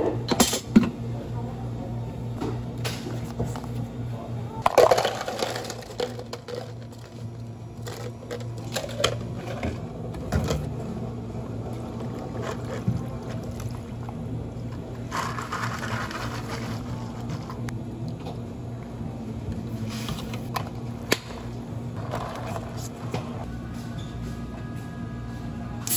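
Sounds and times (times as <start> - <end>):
low machine hum: 0.0 - 25.9
ice cubes clattering into cup: 4.6 - 7.1.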